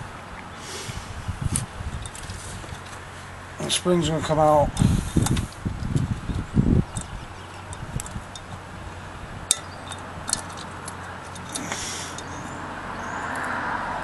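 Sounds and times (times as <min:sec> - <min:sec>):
light metallic clicks and clinks: 0:09.5 - 0:12.6.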